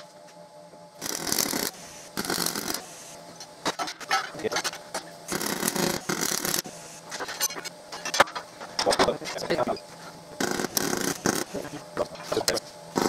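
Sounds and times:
welding arc crackling hiss: 1.0 - 3.2, 5.3 - 8.1, 10.4 - 13.0.

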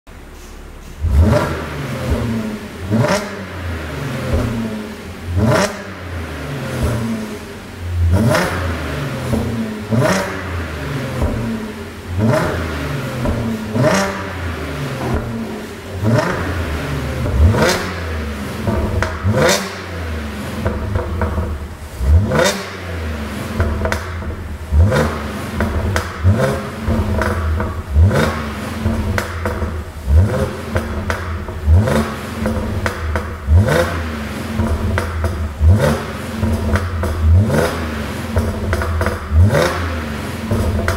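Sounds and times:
car engine revving: 0.8 - 40.9
exhaust pops and crackles: 13.2 - 22.8, 23.4 - 40.9.

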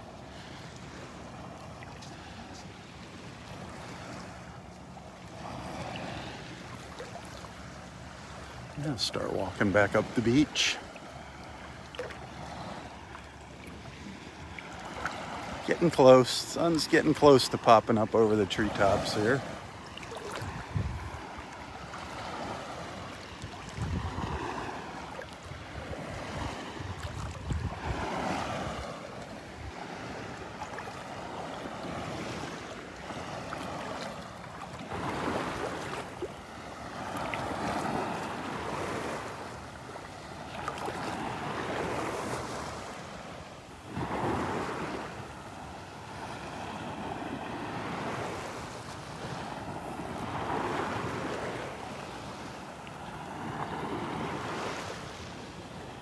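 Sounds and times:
small waves lapping on sand: 0.0 - 56.0
wind rumble on microphone: 20.4 - 21.4, 23.4 - 24.8, 25.5 - 29.0.

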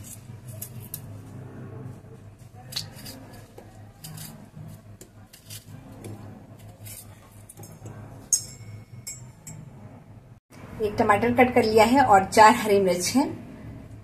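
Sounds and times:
knife slicing tomato: 2.6 - 8.0
sharp metallic clink: 8.3 - 9.6.

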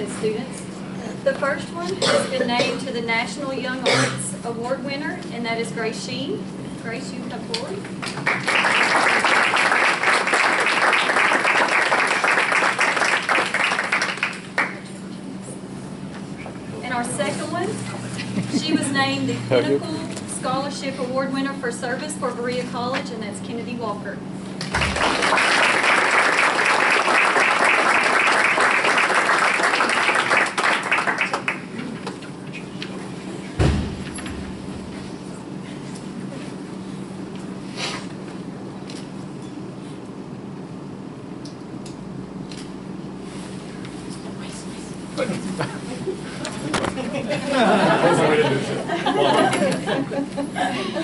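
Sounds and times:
audience applauding: 8.0 - 14.9, 24.6 - 31.8.

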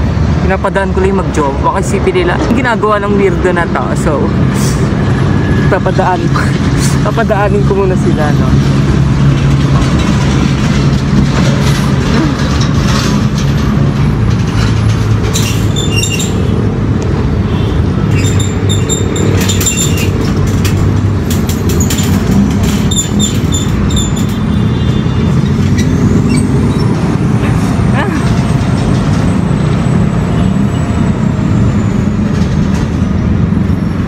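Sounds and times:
traffic noise: 0.0 - 34.0
engine running with low hum: 4.1 - 34.0
wire shopping cart clinking: 18.1 - 24.6.

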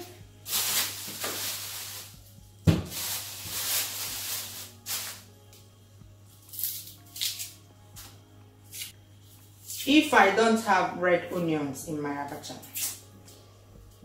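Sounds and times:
plastic bag rustling: 0.0 - 5.3.

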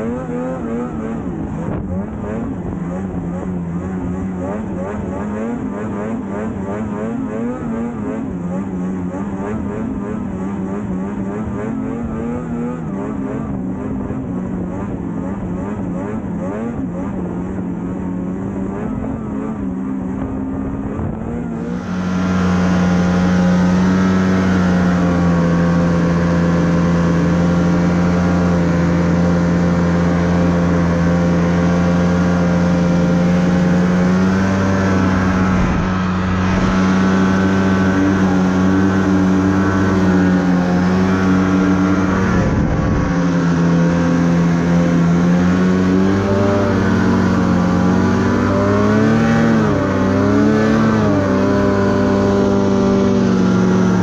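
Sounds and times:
snowmobile engine running: 0.0 - 54.0.

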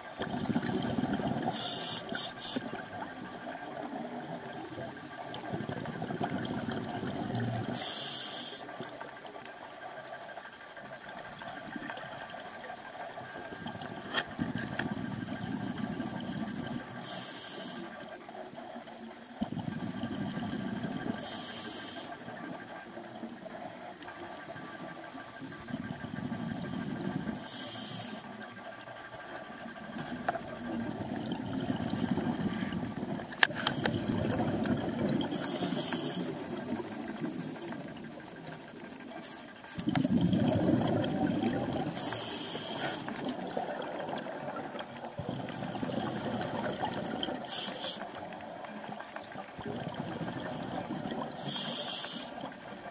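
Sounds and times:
bubbling exhalations underwater: 0.2 - 1.8, 5.3 - 7.8, 30.6 - 35.8, 39.8 - 42.2, 43.2 - 47.6, 49.5 - 51.6
regulator hissing inhalations: 1.5 - 2.8, 7.8 - 8.7, 17.0 - 17.9, 21.2 - 22.2, 27.4 - 28.3, 35.3 - 37.8, 41.9 - 43.2, 46.2 - 48.1, 51.4 - 52.5.

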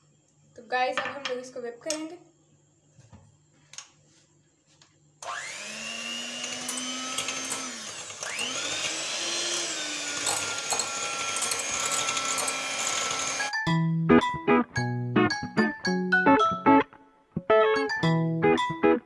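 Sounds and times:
electric hand mixer whining: 5.2 - 13.5.

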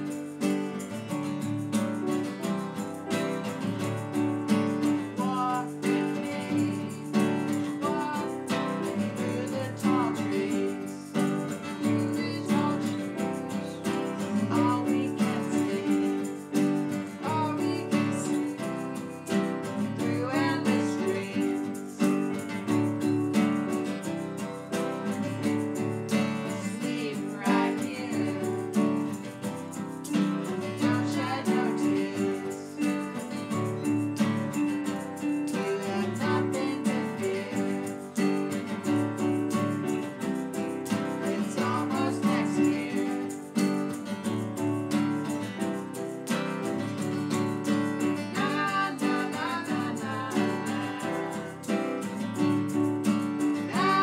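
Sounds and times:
keyboard playing piano: 0.0 - 9.0, 11.1 - 20.6
hand shaker: 0.0 - 54.0
strummed acoustic guitar: 0.0 - 54.0
man and woman singing: 5.2 - 19.1, 19.9 - 22.1, 26.4 - 29.1, 30.7 - 33.2, 35.5 - 38.4, 41.2 - 43.6, 48.2 - 51.8, 53.6 - 54.0.

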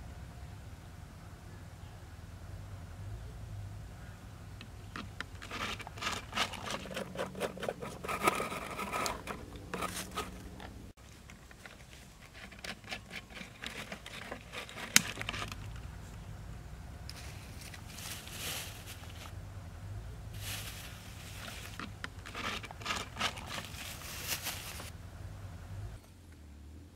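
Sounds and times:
plastic bottles clicking and crinkling: 5.0 - 15.8, 21.4 - 24.9.

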